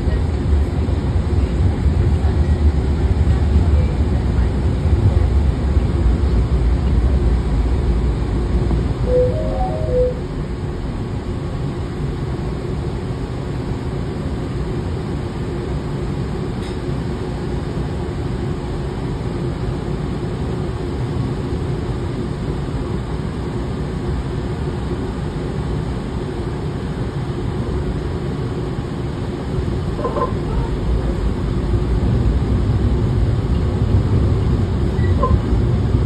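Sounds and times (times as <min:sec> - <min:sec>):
steady hum: 0:00.0 - 0:12.8
streetcar cabin rumble: 0:00.0 - 0:36.0.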